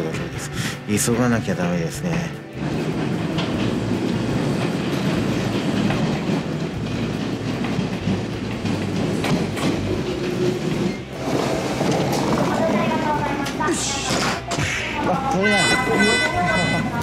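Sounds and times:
train wheels clacking over rail joints: 1.4s - 14.5s
train whine: 2.4s - 13.6s.

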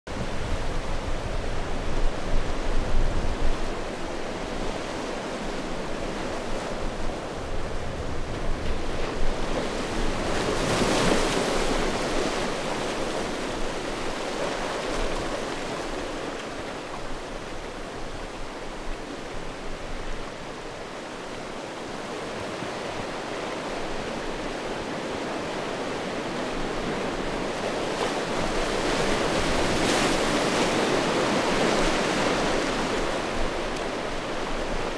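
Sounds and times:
waves washing on stony shore: 0.2s - 34.9s.

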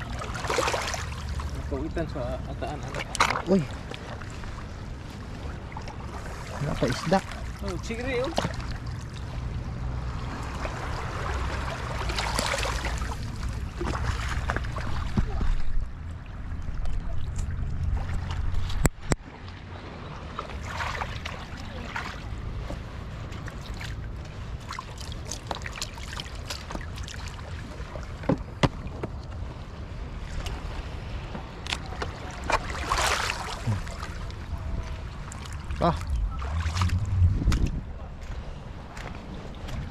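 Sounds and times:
seawater sloshing around feet: 0.0s - 39.9s
wind noise on microphone: 36.0s - 39.9s.

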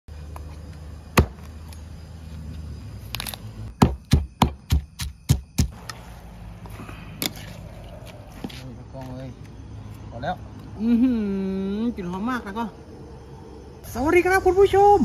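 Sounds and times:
cleaver chopping on wooden block: 1.2s - 1.4s, 3.8s - 5.8s
pestle pounding in stone mortar: 3.8s - 5.8s.

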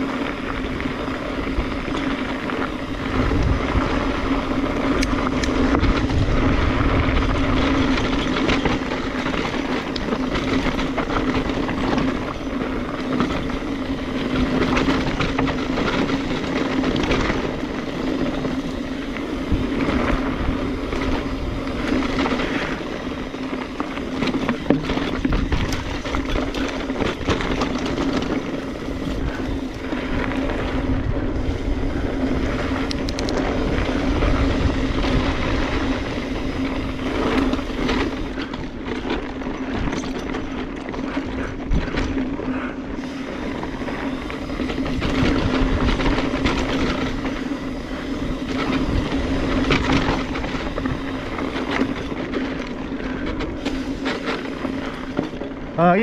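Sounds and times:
bike clattering over bumps: 0.0s - 56.0s
tyres crunching on loose gravel: 0.0s - 56.0s
wind rumble on microphone: 0.0s - 56.0s.

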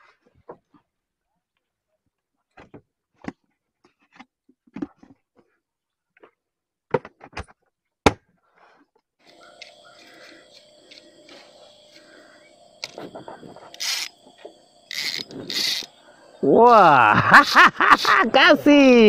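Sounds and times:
fishing reel whirring: 9.3s - 18.2s.

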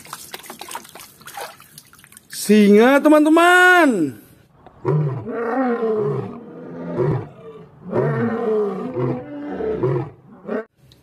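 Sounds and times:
lion roaring: 4.8s - 10.7s.

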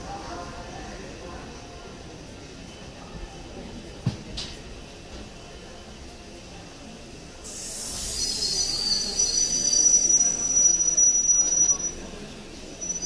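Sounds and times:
low train rumble: 0.0s - 13.0s
train wheels squealing on rails: 7.4s - 13.0s.

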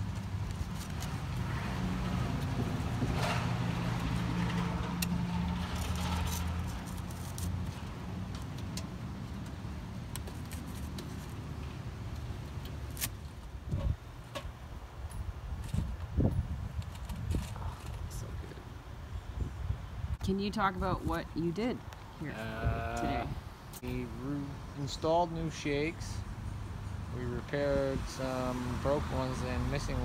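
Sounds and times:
vehicle engine humming: 0.0s - 14.9s.

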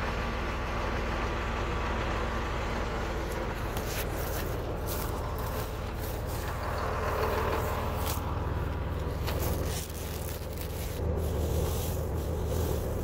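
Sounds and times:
tractor engine idling: 0.0s - 13.0s
rustling and scraping of dry forage: 3.2s - 13.0s.

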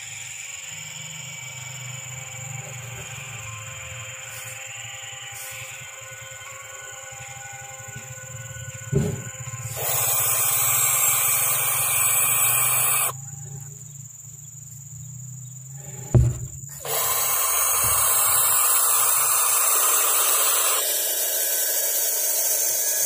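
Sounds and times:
owl chicks hissing: 5.4s - 5.8s, 9.7s - 13.1s, 16.7s - 23.0s
thump: 8.9s - 9.3s, 16.0s - 16.8s.

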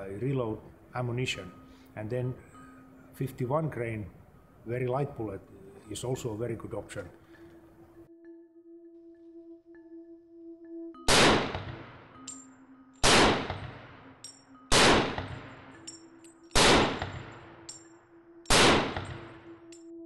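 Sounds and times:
rifle shots echoing: 11.1s - 12.0s, 13.0s - 15.8s, 16.5s - 17.6s, 18.5s - 19.5s.

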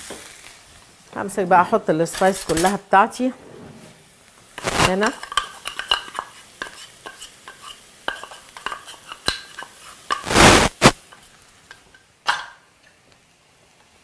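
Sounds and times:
spices rushing into pan: 4.0s - 14.0s.

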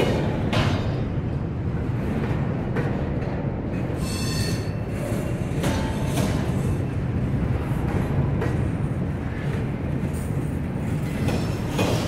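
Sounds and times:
freight train wheels rumbling: 0.0s - 12.0s
high wheel squeal: 4.0s - 4.8s.

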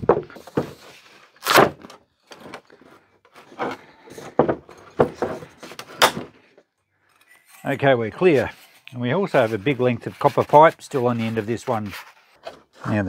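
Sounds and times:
plastic and metal parts clunking: 0.0s - 6.7s.

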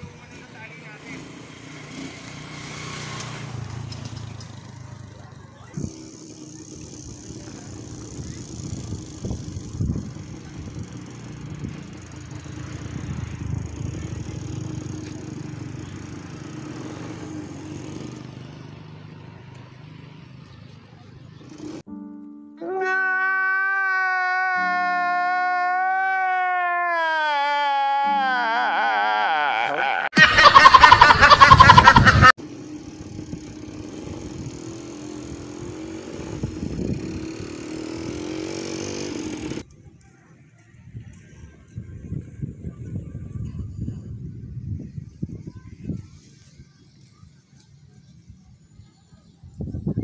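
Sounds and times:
wind buffeting microphone: 6.8s - 16.6s, 32.9s - 38.3s, 40.7s - 50.0s
duck quacking: 30.1s - 32.3s.

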